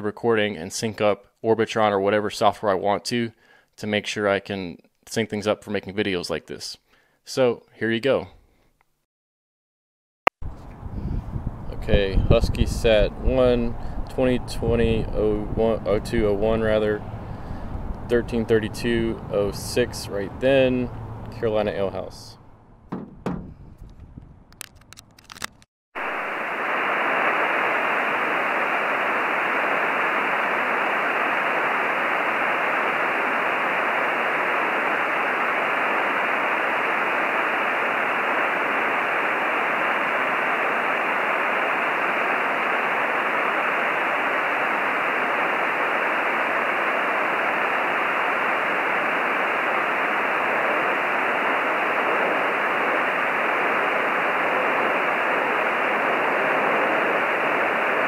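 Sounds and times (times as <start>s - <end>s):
radio receiver hiss: 11.7s - 22.4s, 25.3s - 58.0s.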